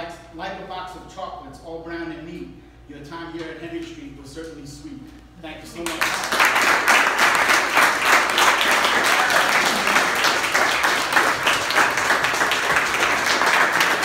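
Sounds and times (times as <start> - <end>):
crowd applauding: 5.8 - 14.0.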